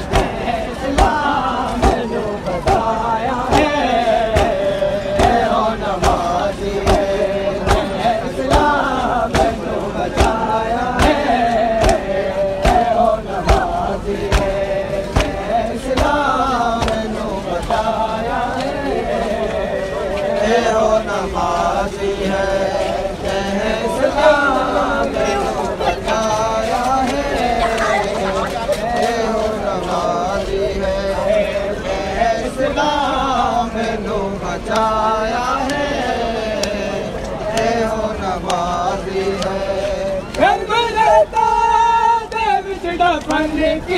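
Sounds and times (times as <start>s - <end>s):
heavy beat: 0.0s - 17.2s
men chanting together: 0.0s - 43.9s.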